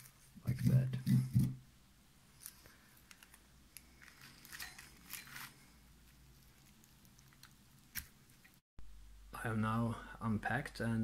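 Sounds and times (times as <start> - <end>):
bubble wrap crinkling: 2.3 - 8.6.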